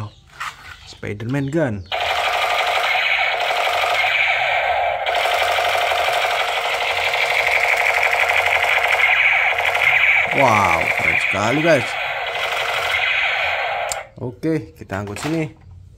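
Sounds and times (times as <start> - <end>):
toy gun machine-gun sound effect: 1.9 - 14.1.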